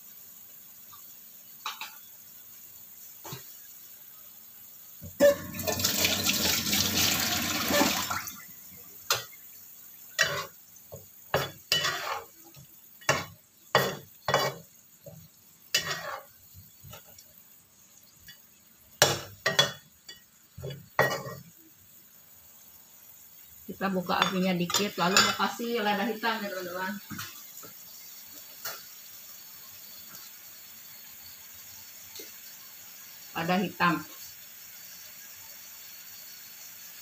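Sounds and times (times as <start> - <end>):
liquid poured into hot wok: 5.2 - 8.4
spatula scraping a wok: 10.1 - 10.6, 11.3 - 14.7, 15.7 - 17.0.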